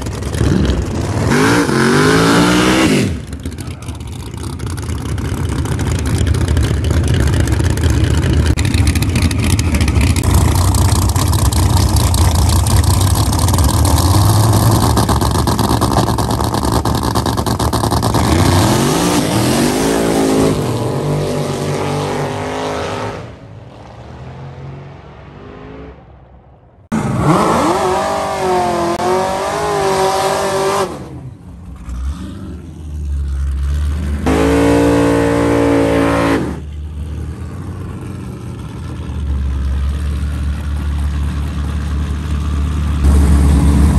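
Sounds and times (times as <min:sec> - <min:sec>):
car engine revving: 0:00.0 - 0:36.8.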